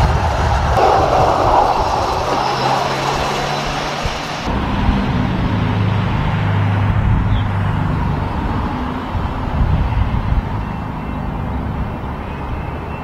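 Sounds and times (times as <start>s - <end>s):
road vehicle engines humming: 0.0s - 13.0s
truck rolling on rails: 0.0s - 13.0s.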